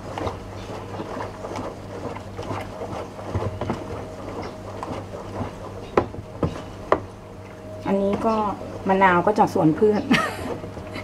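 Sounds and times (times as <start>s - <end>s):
liquid swishing and sloshing: 0.0s - 8.8s.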